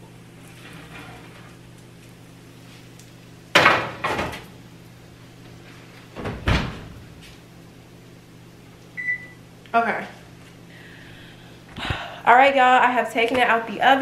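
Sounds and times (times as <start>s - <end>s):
oven door shutting: 0.4s - 1.7s, 3.5s - 4.5s, 6.0s - 7.2s.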